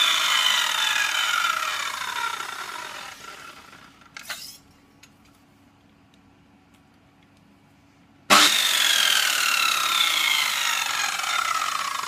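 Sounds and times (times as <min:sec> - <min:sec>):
circular saw coasting down: 0:00.0 - 0:04.0, 0:08.3 - 0:12.0.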